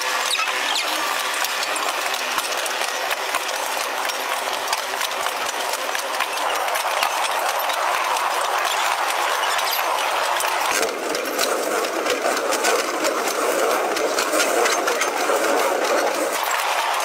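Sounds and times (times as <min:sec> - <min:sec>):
mechanical rattling and clattering: 0:00.0 - 0:17.0.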